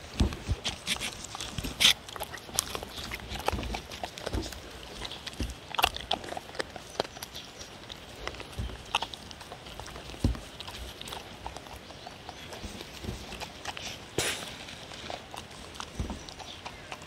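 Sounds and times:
dogs licking a paper plate: 0.0 - 17.0.

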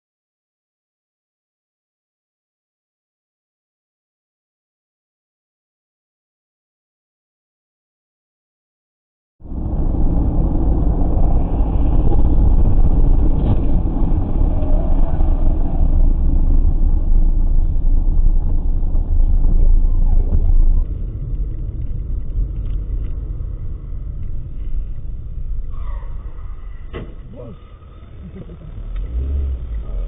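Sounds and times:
car road and engine rumble: 9.4 - 30.0.

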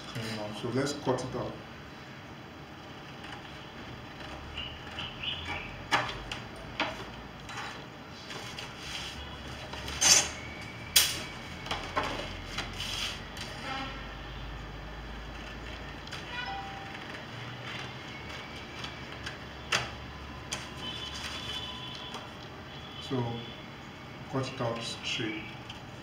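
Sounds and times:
paper rustling and sliding: 7.5 - 10.0, 12.1 - 13.6.

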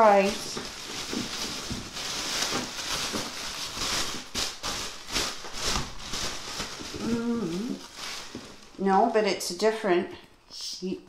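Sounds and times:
packing wrap rustling and crinkling: 0.0 - 8.8.

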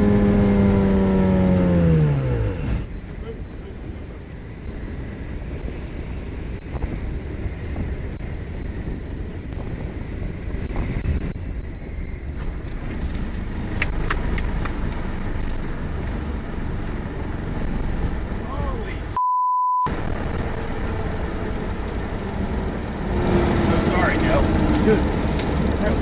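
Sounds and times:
gliding plane rumble: 0.0 - 19.2, 19.9 - 26.0
wind rush: 3.9 - 19.1.

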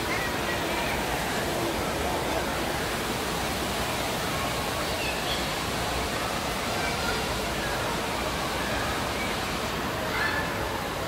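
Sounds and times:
faint distant voices: 0.0 - 11.0
water running and splashing: 0.0 - 11.0.

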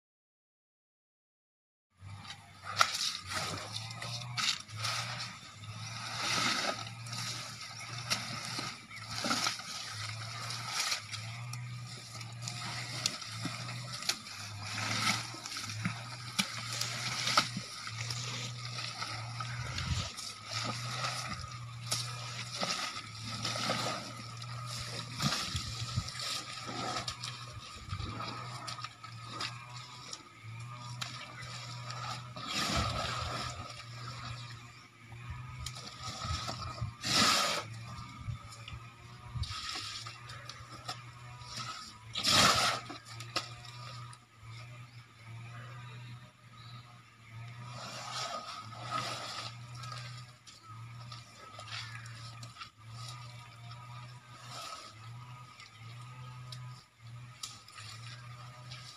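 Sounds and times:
steady low hum: 2.0 - 58.9
mud squelching and splattering: 2.6 - 44.1
elephant blowing through trunk: 36.0 - 37.8, 41.5 - 42.9.

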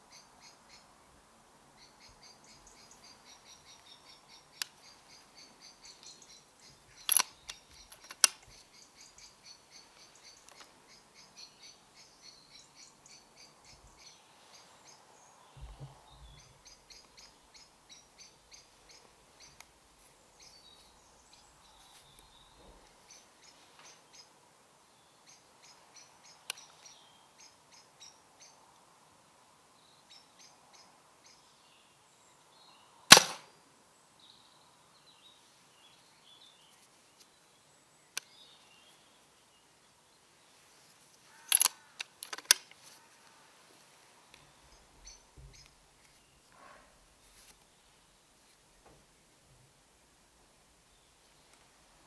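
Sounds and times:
air rifle shot crack: 33.1 - 33.5.

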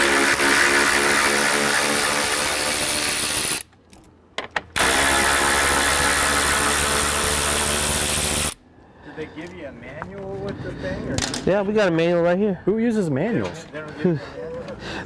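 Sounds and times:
electric ratchet motor whining: 0.0 - 3.6.

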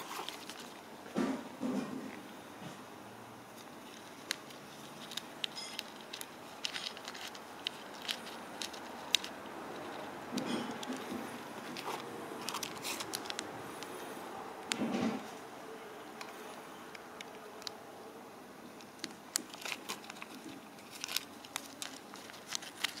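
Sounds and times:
plastic bags crinkling: 0.0 - 0.9, 3.6 - 13.8, 18.8 - 23.0.

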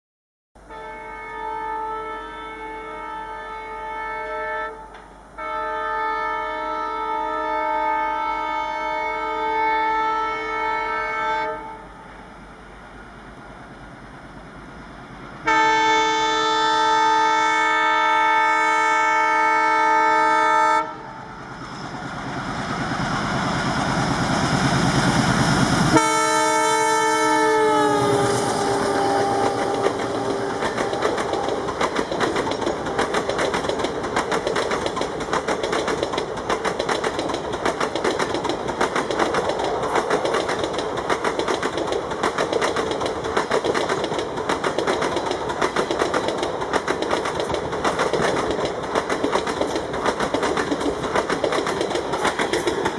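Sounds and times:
locomotive air horn blast: 0.6 - 12.0, 15.4 - 21.4, 25.9 - 31.7
train wheels clattering over rail joints: 28.3 - 52.9.

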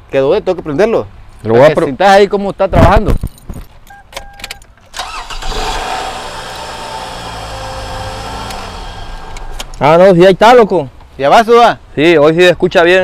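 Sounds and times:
car engine starting: 4.9 - 9.8
car engine idling: 5.0 - 9.8.

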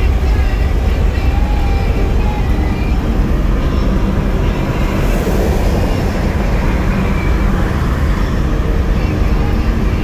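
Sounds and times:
car engine and road rumble: 0.0 - 10.0.

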